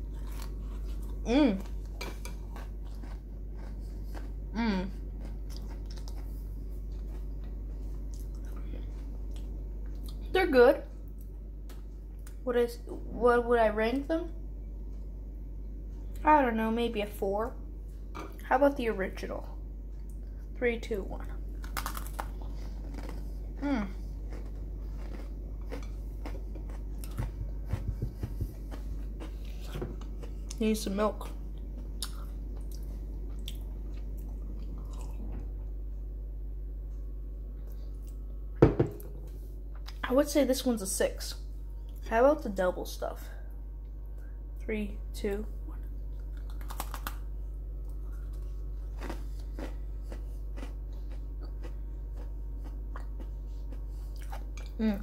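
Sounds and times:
cookie crunching: 0:00.0 - 0:10.4, 0:21.2 - 0:35.2, 0:45.7 - 0:54.8
steady low hum: 0:00.0 - 0:55.0
cookie crunching clicks: 0:21.6 - 0:23.2, 0:46.2 - 0:53.2.

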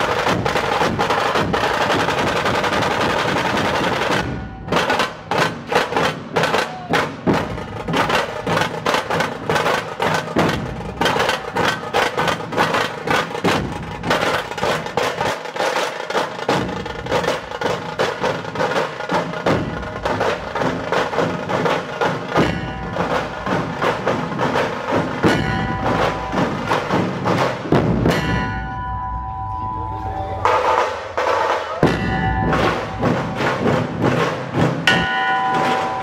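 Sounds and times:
drum ensemble playing fast beat: 0:00.0 - 0:36.0
large metal bell ringing: 0:04.2 - 0:05.2, 0:22.4 - 0:24.4, 0:25.2 - 0:27.4, 0:28.0 - 0:36.0.

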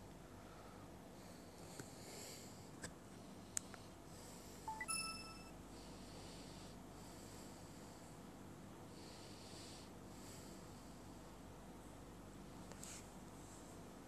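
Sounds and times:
rising electronic chime: 0:04.7 - 0:05.5.

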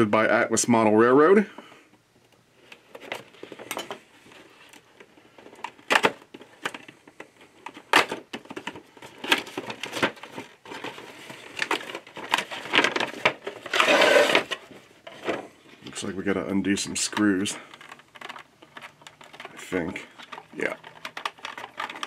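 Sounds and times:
packaging rustle: 0:02.6 - 0:15.4, 0:17.4 - 0:22.0
plastic packaging crinkling: 0:07.6 - 0:14.8, 0:17.4 - 0:22.0
knife cutting cardboard box: 0:13.7 - 0:14.6.

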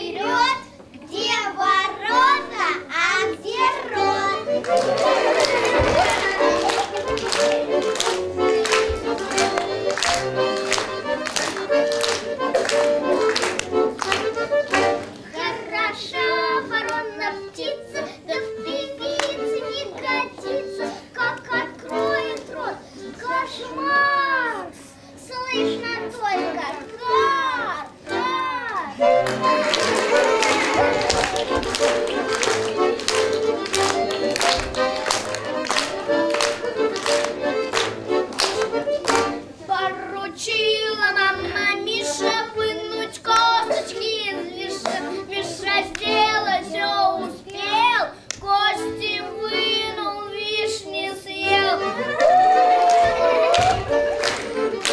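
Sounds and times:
musical accompaniment: 0:00.0 - 0:24.2, 0:25.2 - 0:54.9
children singing folk ditties: 0:00.0 - 0:54.9
sharp rhythmic beats: 0:02.0 - 0:15.3, 0:28.0 - 0:39.6, 0:52.9 - 0:54.9.

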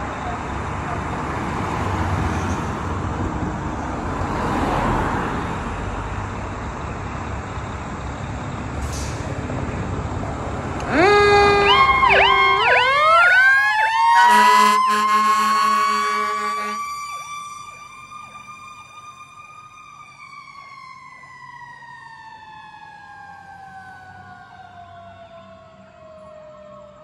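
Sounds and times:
fire engine siren wailing: 0:10.6 - 0:27.0
horn blast: 0:10.8 - 0:13.2, 0:14.2 - 0:16.8.

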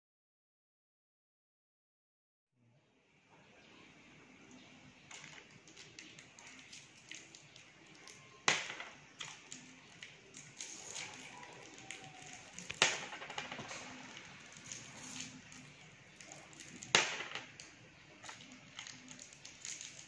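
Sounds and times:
candy wrappers crinkling: 0:09.2 - 0:16.9, 0:17.5 - 0:20.0.

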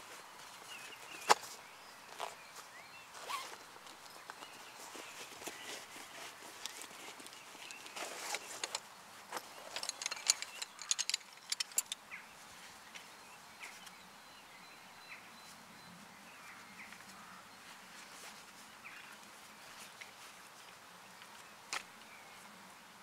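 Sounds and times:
faint birdsong: 0:00.0 - 0:23.0
metal chair poles clicking and rattling: 0:06.8 - 0:12.0.

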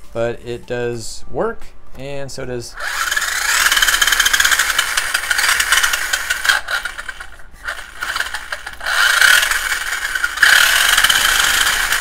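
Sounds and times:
electric motor whine with gear chatter: 0:02.8 - 0:12.0.

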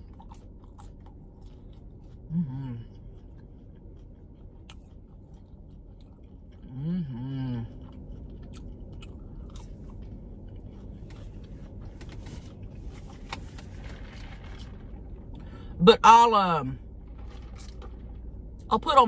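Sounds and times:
close-up chewing: 0:00.0 - 0:15.6
person humming mmm: 0:02.3 - 0:02.9, 0:06.6 - 0:07.7.

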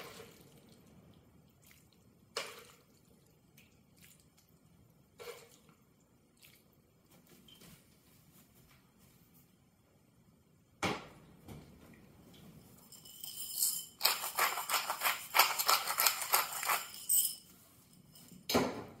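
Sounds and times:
pepper mill grinding: 0:13.2 - 0:17.4.

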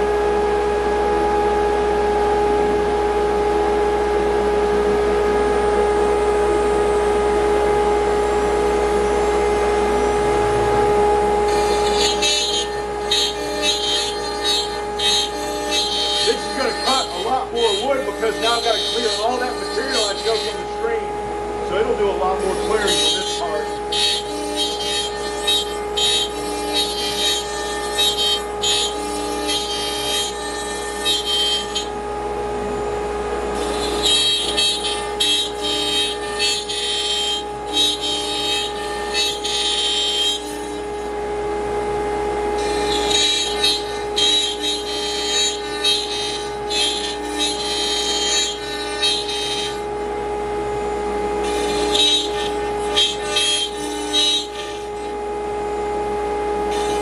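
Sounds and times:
spindle high whine: 0:00.0 - 0:57.0
router bit cutting wood: 0:04.9 - 0:41.3, 0:42.4 - 0:50.5, 0:51.2 - 0:55.4, 0:56.5 - 0:57.0.

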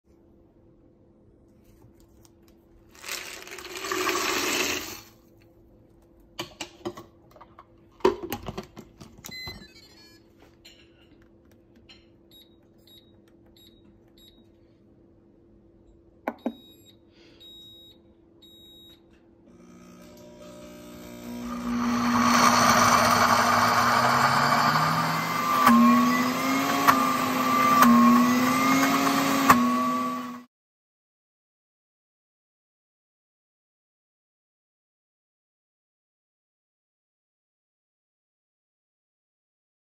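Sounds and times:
peanuts poured into blender: 0:02.9 - 0:05.1.

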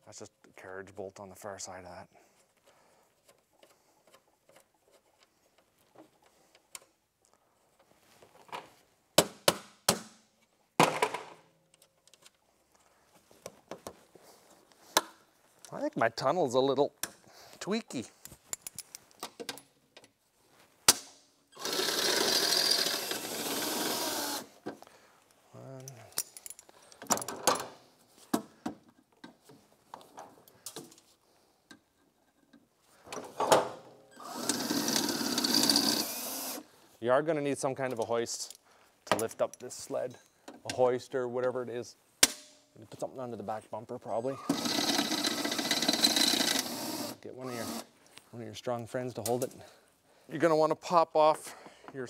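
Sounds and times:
drill spinning through rivet: 0:21.6 - 0:24.5, 0:34.2 - 0:36.6, 0:44.4 - 0:47.9.

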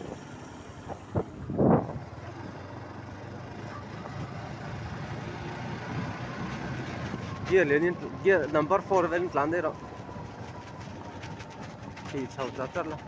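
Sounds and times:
motorcycle engine rumble: 0:00.0 - 0:13.0
road and wind noise: 0:00.0 - 0:13.0.

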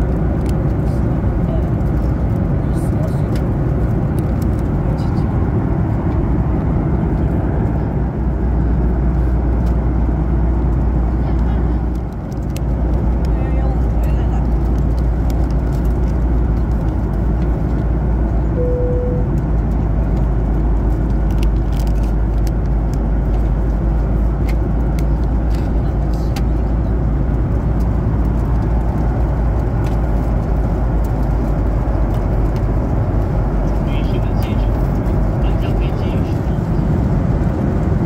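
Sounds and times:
airplane cabin rumble: 0:00.0 - 0:38.0
single tone: 0:18.6 - 0:19.4.

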